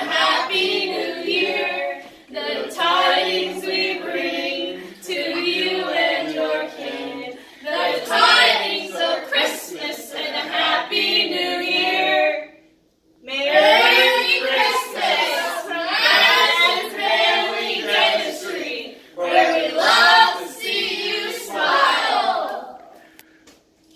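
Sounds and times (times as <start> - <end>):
group singing unaccompanied: 0.0 - 12.6, 13.2 - 23.0.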